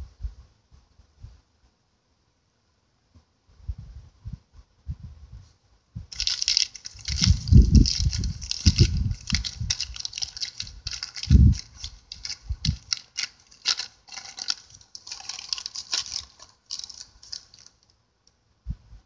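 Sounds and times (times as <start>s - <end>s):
bag crinkling and rustling: 6.1s - 17.9s.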